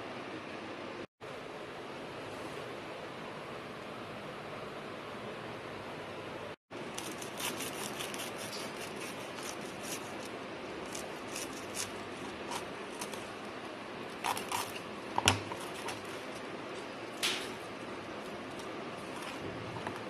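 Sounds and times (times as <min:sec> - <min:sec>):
knife cutting crunchy toast: 0:14.2 - 0:14.9.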